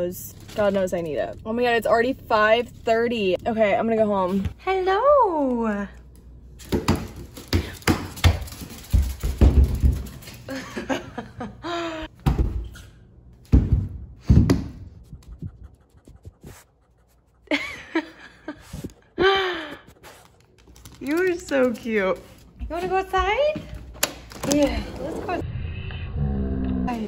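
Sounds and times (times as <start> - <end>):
dog panting: 15.0 - 22.5.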